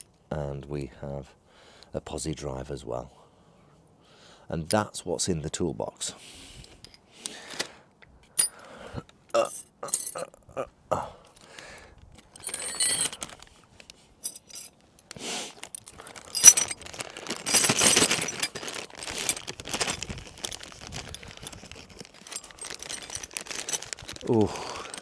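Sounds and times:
metal hand tools clinking: 8.4s - 8.6s, 9.4s - 10.3s, 12.4s - 13.3s, 14.2s - 14.8s, 15.6s - 16.8s, 17.4s - 19.4s, 21.4s - 24.0s, 24.7s - 25.0s
plastic pouch crinkling: 15.6s - 25.0s.

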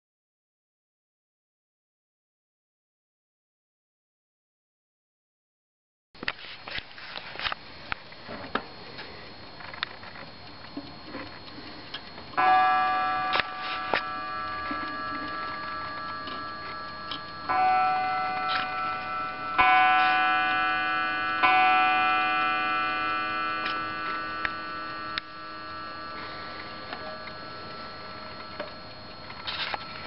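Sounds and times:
mantel clock striking: 12.3s - 30.0s.

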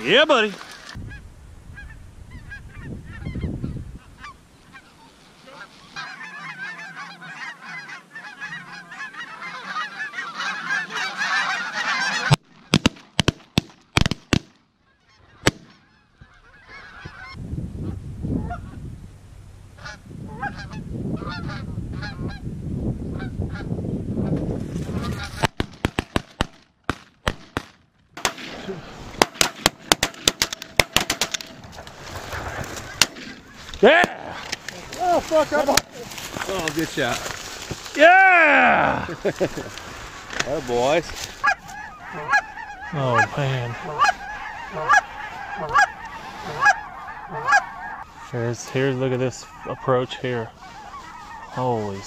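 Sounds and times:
geese calling: 0.0s - 12.8s, 14.8s - 17.4s, 19.8s - 22.4s, 28.6s - 52.0s.

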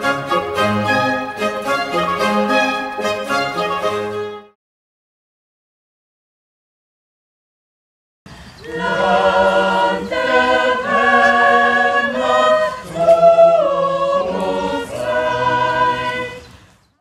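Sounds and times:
choir singing chords: 0.0s - 4.6s, 8.6s - 16.6s.

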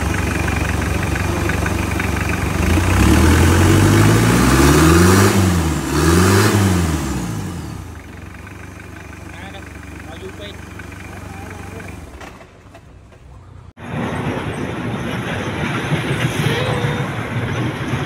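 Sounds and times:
engine revving and idling: 0.0s - 12.4s.

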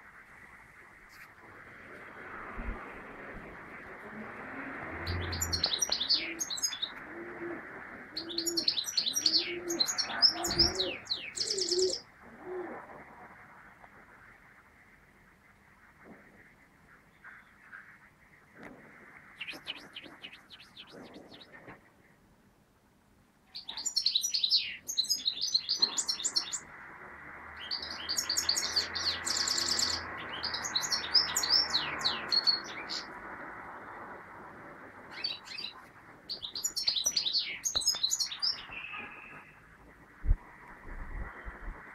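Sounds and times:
goldfinch twittering and trilling: 5.0s - 7.0s, 8.2s - 12.0s, 23.6s - 26.6s, 27.6s - 33.1s, 35.1s - 39.6s
pigeon cooing: 7.1s - 13.0s.

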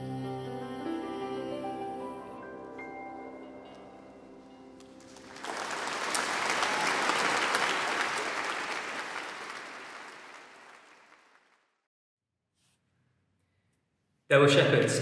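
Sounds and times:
music: 0.0s - 7.0s
audience applause: 5.0s - 11.6s.

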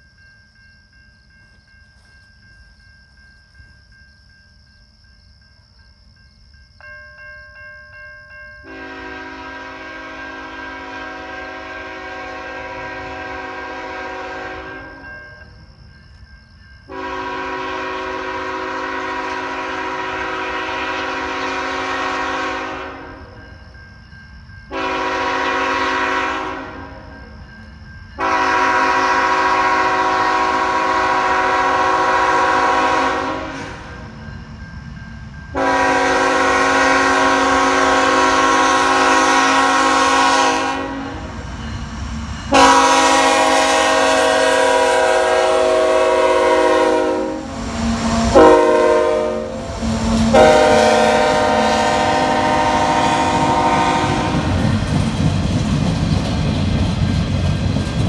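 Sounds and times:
freight train rumbling past: 0.0s - 58.0s
locomotive air horn blasts: 8.6s - 15.1s, 16.9s - 23.3s, 24.7s - 27.1s, 28.2s - 34.0s, 35.6s - 41.2s, 42.5s - 54.6s.

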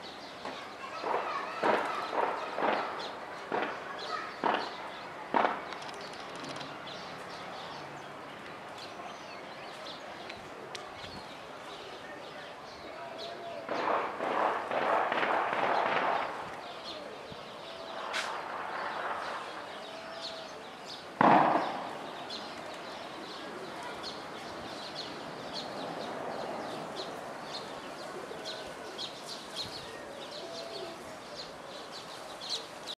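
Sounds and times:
small birds chirping: 0.0s - 33.0s
burst of noise: 18.0s - 19.9s, 21.2s - 22.5s
loud bang: 21.2s - 22.1s
doves cooing: 26.4s - 31.8s.

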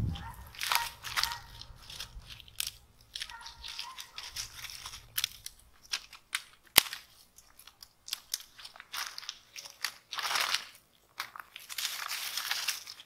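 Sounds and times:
dry leaves rustling and crunching: 0.0s - 13.0s
twigs cracking: 0.0s - 13.0s
stick snapping: 0.4s - 10.0s.

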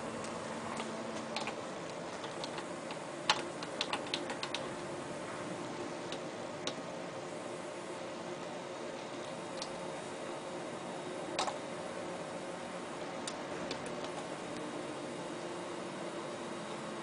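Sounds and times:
keypad buttons clicking: 0.2s - 4.8s, 11.4s - 11.6s.

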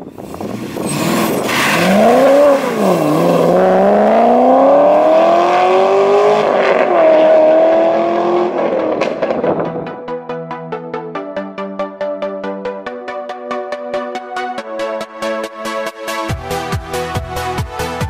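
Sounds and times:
car engine accelerating hard: 0.0s - 9.8s.

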